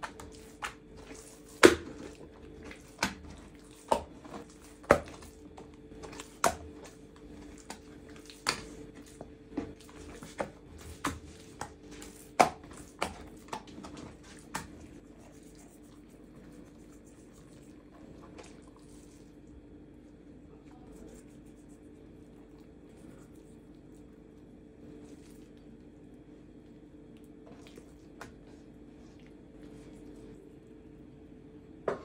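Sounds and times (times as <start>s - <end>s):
wet dough slapping on wood: 0.0s - 15.1s
dough handling: 0.0s - 22.1s.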